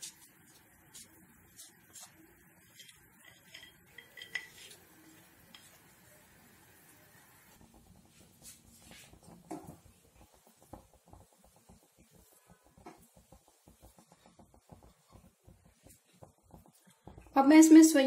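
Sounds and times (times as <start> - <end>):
spatula stirring in steel pan: 0.0 - 6.1, 7.5 - 18.0
spoon scraping ceramic plate: 2.7 - 4.8.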